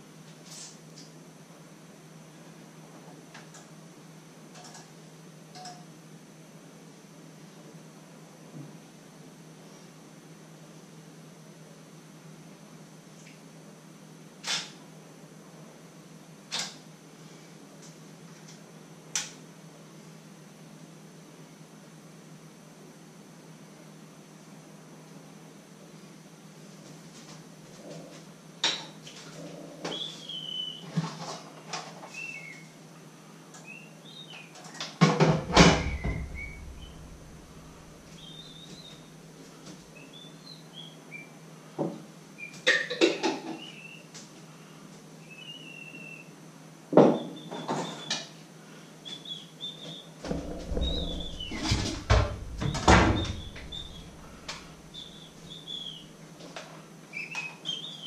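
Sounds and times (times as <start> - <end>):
cupboards and drawers opening and shutting: 35.1 - 38.0, 50.3 - 55.0.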